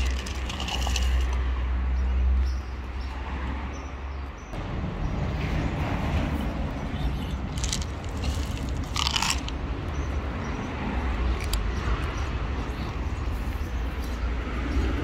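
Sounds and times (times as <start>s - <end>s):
kittens chewing dry kibble: 0.0s - 1.4s, 7.4s - 9.6s.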